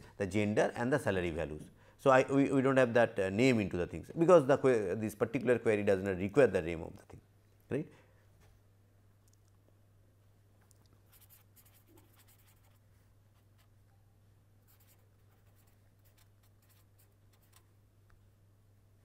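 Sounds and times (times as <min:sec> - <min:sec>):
pen scratching on paper: 0:11.1 - 0:12.8, 0:14.7 - 0:17.6.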